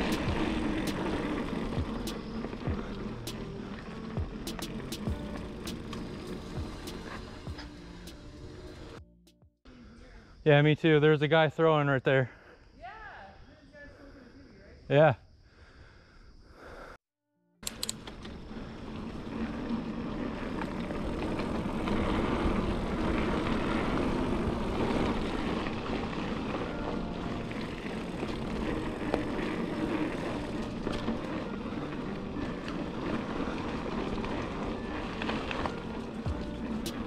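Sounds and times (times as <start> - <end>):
tyre and wind rush: 0.0 - 8.9, 18.3 - 37.0
bike rattling: 0.0 - 9.0, 17.6 - 37.0.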